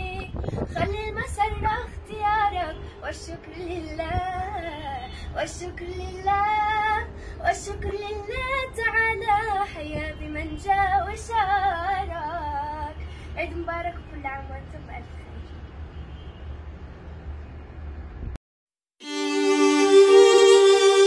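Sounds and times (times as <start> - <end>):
girl singing: 0.0 - 14.0.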